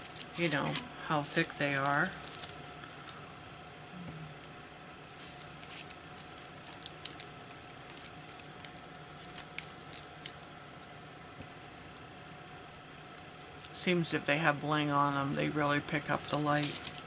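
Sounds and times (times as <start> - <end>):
plastic sleeves crinkling: 0.0 - 3.2, 5.0 - 11.1, 15.9 - 17.0.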